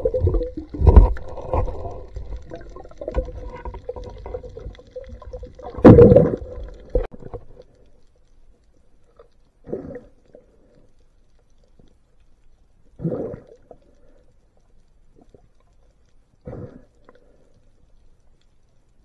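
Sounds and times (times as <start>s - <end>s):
knocks and thumps underwater: 0.0s - 7.5s
muffled underwater water movement: 0.0s - 19.0s.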